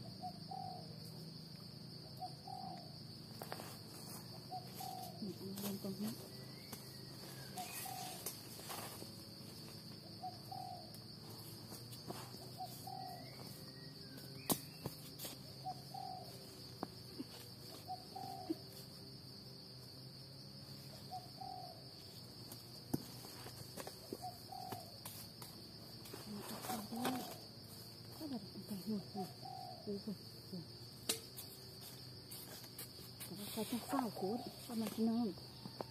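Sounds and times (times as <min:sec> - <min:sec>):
high-pitched insect drone: 0:00.0 - 0:35.9
dove cooing: 0:00.2 - 0:00.9, 0:04.5 - 0:06.3, 0:07.2 - 0:08.3, 0:10.2 - 0:10.9, 0:12.4 - 0:13.6, 0:15.6 - 0:16.4, 0:17.1 - 0:18.8, 0:21.0 - 0:21.8, 0:24.1 - 0:24.9, 0:26.3 - 0:27.4, 0:28.2 - 0:30.6.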